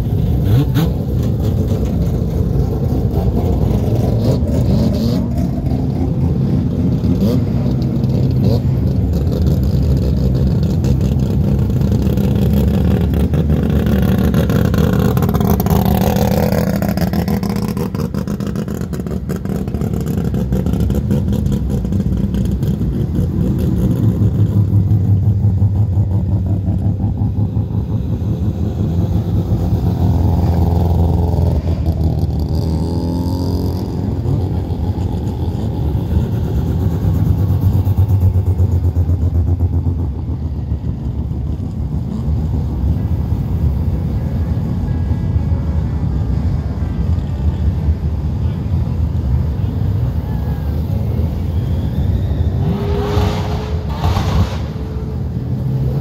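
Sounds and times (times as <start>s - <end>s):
rotary car engines passing: 0.0s - 56.0s.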